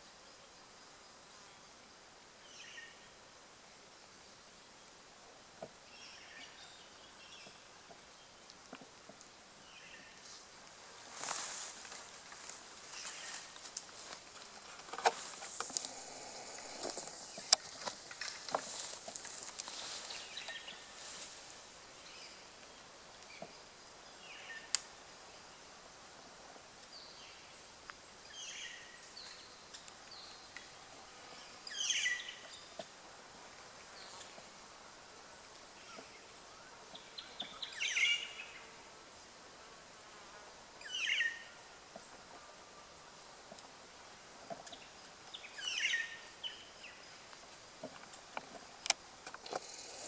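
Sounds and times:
insect buzzing: 9.7s - 42.3s, 43.1s - 50.0s
light clicks and crackles: 10.6s - 20.6s.

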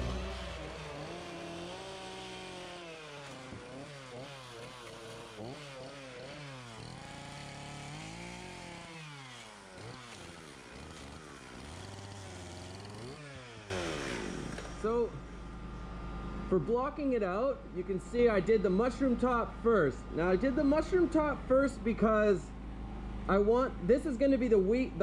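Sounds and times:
chainsaw cutting wood: 0.0s - 15.6s.

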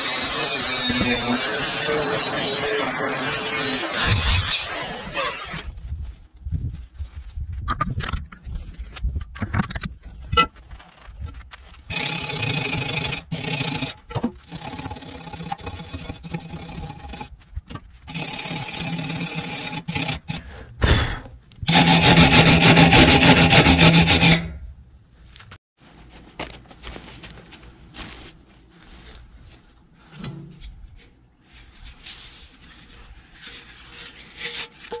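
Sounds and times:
wire brush scrubbing cast iron: 0.0s - 5.6s, 11.9s - 17.4s, 18.0s - 20.4s, 21.7s - 24.6s, 31.6s - 35.0s.

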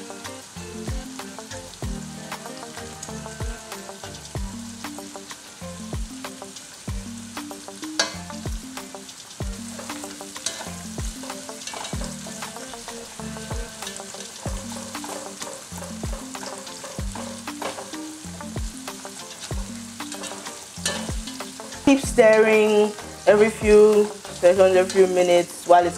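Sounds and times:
background music with beat: 0.0s - 25.0s
onions sizzling in oil: 0.0s - 25.9s
spoon stirring and scraping: 9.7s - 23.0s.

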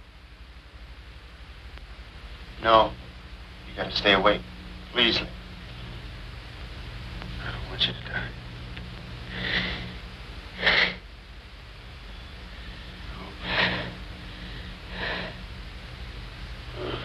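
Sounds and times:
steady low hum: 0.0s - 17.0s
heavy breaths: 9.2s - 11.0s, 12.4s - 15.5s, 16.7s - 17.0s.

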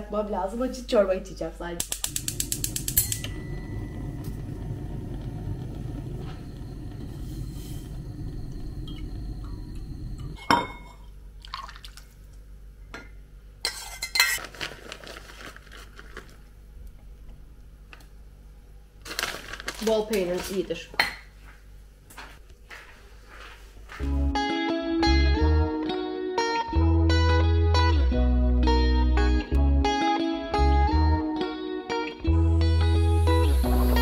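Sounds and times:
low rushing noise: 3.2s - 10.4s
soup pouring: 11.4s - 12.4s
spoon and dishes clinking: 12.9s - 14.4s.

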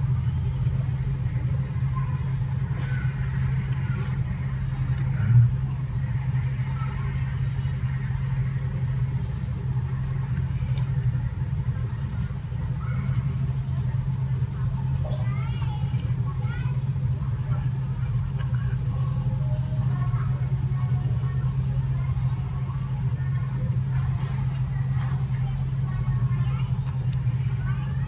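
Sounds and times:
pencil scratching on paper: 0.0s - 4.1s, 6.2s - 10.4s, 11.7s - 15.4s, 17.4s - 23.4s, 24.0s - 26.8s
steady low hum: 0.0s - 28.0s.

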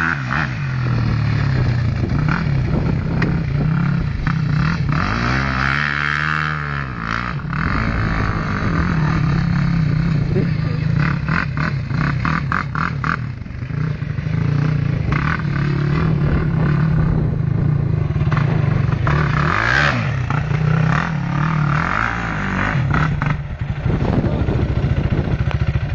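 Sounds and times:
quad engine revving: 0.0s - 25.9s.

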